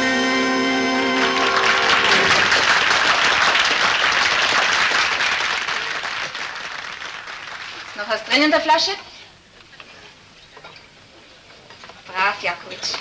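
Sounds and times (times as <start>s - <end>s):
audience applause: 1.0s - 8.3s.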